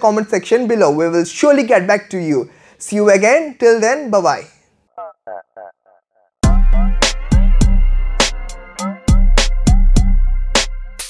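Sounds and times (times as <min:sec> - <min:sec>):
electronic beat music: 0:06.4 - 0:11.0.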